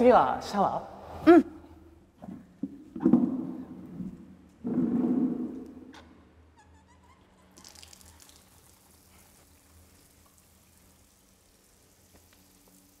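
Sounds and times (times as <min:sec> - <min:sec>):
water dripping: 0:07.6 - 0:13.0
water running from tap: 0:07.6 - 0:13.0.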